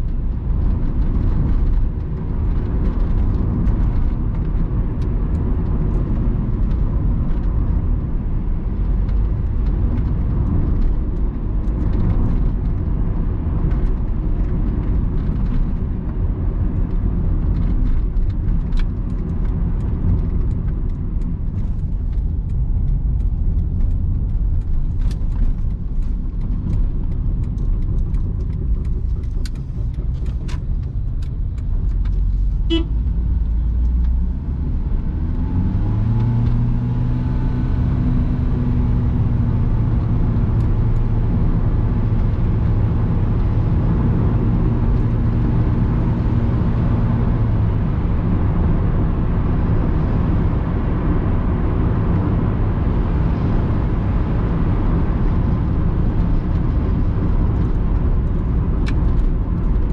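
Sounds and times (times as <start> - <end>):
car engine and road rumble: 0.0 - 59.9
interior clicks and creaks: 0.0 - 59.9
car horn toot: 32.6 - 33.0.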